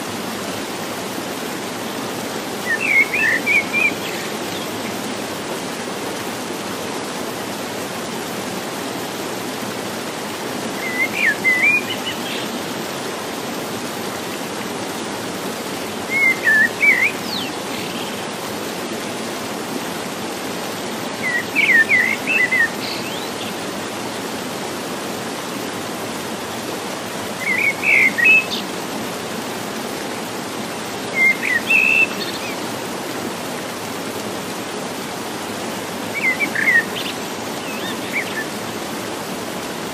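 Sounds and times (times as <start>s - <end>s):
stream rushing: 0.0s - 39.9s
songbird chirps: 2.6s - 5.1s, 10.7s - 12.9s, 15.7s - 18.4s, 21.1s - 24.2s, 27.3s - 28.8s, 31.0s - 32.8s, 36.0s - 38.9s.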